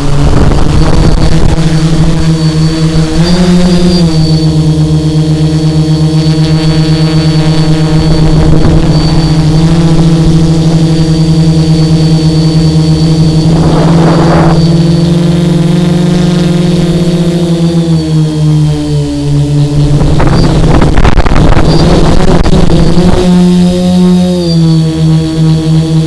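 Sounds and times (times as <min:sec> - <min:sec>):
drone motors humming: 0:00.0 - 0:26.0.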